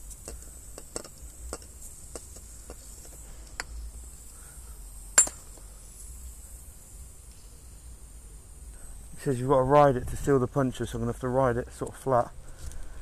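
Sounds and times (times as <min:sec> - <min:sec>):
faint hiss: 0:00.0 - 0:13.0
sharp metal clink: 0:05.2 - 0:05.6.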